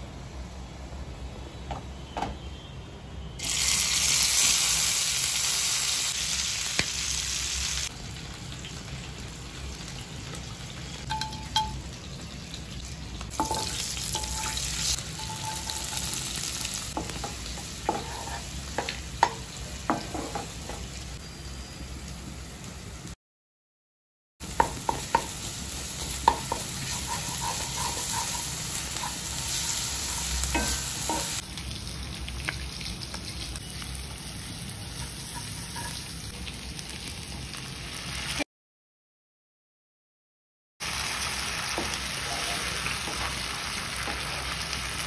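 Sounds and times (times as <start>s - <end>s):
food sizzling in hot oil: 3.4s - 23.2s, 24.4s - 38.4s, 40.8s - 45.0s
spatula knocking and scraping pan: 16.9s - 20.9s, 24.6s - 31.4s.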